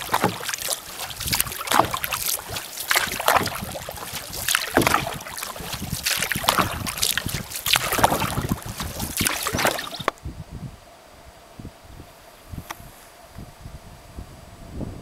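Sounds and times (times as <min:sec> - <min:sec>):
paddle splashing through water: 0:00.0 - 0:10.2.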